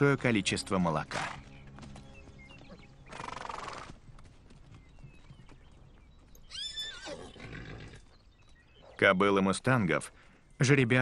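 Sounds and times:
horses whinnying: 0:02.6 - 0:04.0, 0:06.3 - 0:08.1.

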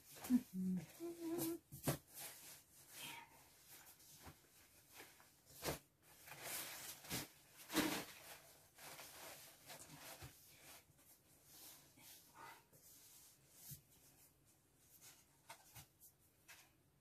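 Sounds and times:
clothes rustling against cardboard: 0:00.0 - 0:16.8.

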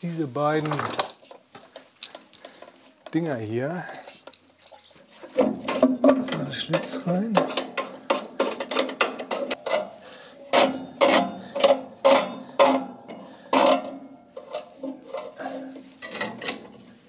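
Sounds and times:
metal knocks and rattles: 0:04.1 - 0:16.9.

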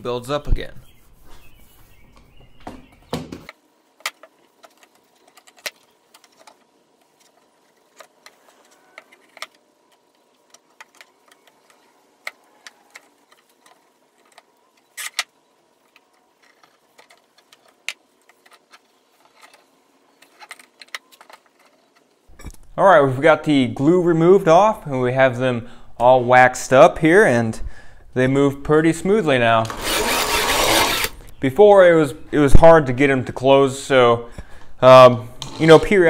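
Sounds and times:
rag rubbing wax on bars: 0:00.8 - 0:02.1.

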